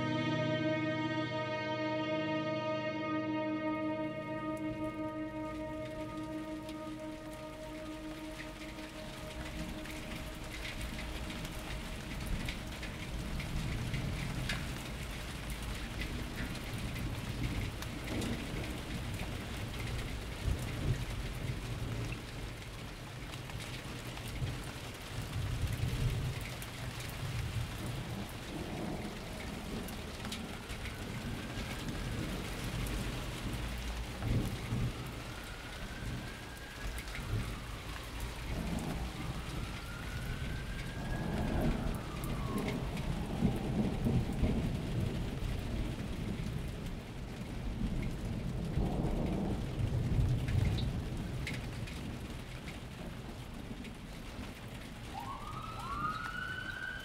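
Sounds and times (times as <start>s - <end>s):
steady rain: 3.2s - 57.0s
rolling thunder: 37.2s - 52.3s.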